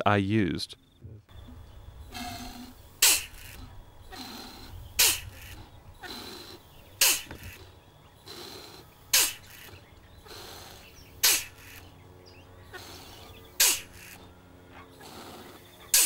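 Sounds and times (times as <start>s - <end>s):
sharp gas hiss bursts: 2.1s - 11.8s, 12.8s - 14.2s.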